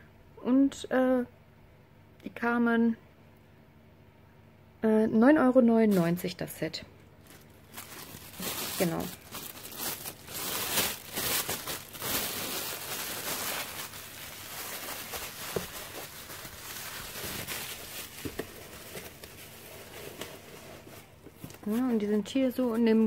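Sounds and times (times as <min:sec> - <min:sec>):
bubble wrap crinkling: 0:07.2 - 0:23.0.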